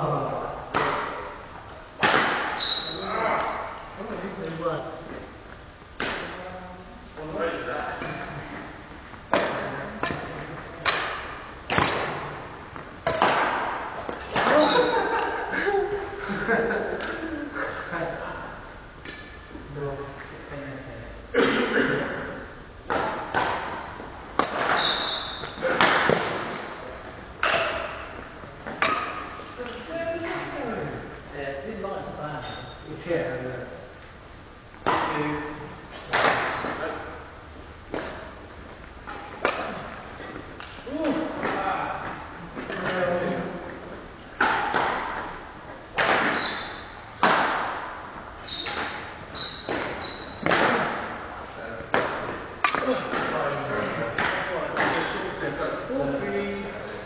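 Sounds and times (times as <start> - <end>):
rackets hitting shuttlecock: 0.7 - 1.4, 2.0 - 3.5, 6.0 - 6.4, 9.3 - 15.3, 22.8 - 29.4, 34.8 - 37.2, 37.9 - 43.0, 44.4 - 55.2
court shoes squeaking: 2.0 - 3.6, 8.0 - 15.3, 22.9 - 29.8, 34.8 - 41.7, 45.9 - 47.6, 48.3 - 51.4
racket striking shuttlecock: 10.8 - 12.4, 13.0 - 14.6, 22.9 - 26.5, 44.4 - 46.5, 47.2 - 47.8.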